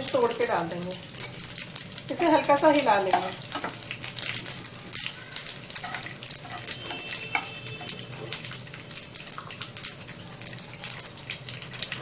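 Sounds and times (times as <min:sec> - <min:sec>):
oil sizzling: 0:00.0 - 0:12.0
seeds popping in hot oil: 0:00.0 - 0:12.0
wooden spatula stirring: 0:05.6 - 0:08.4.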